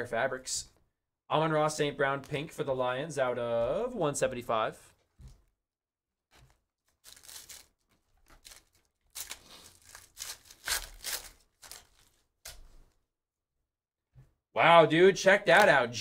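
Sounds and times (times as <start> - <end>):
foil wrapper tearing and crinkling: 6.4 - 12.6.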